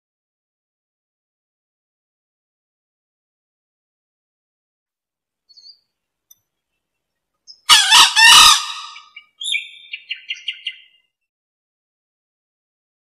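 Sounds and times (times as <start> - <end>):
junglefowl crowing: 7.7 - 9.2.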